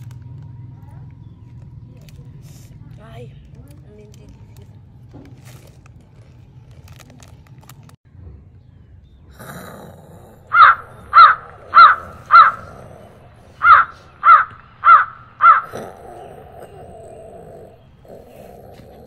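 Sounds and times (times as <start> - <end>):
crow cawing: 10.5 - 15.9.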